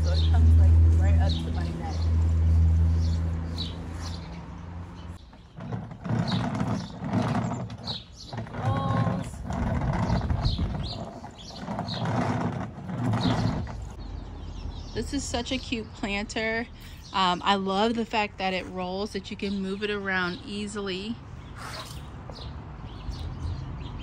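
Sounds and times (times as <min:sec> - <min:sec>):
small birds chirping: 0:00.0 - 0:24.0
wire cage scraping and rattling: 0:05.2 - 0:14.0.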